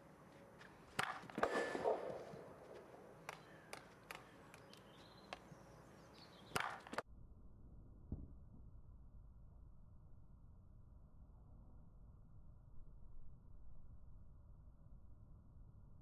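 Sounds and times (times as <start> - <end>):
hockey stick hitting ball: 0.6 - 5.6, 6.3 - 7.0.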